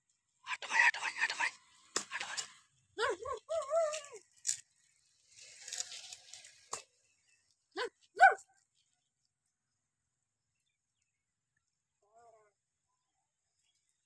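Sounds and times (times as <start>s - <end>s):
dog yelping: 7.8s - 8.4s.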